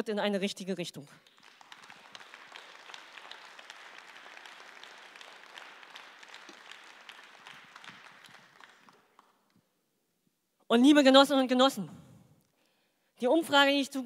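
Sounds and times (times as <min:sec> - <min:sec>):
audience applauding: 0:01.2 - 0:09.6.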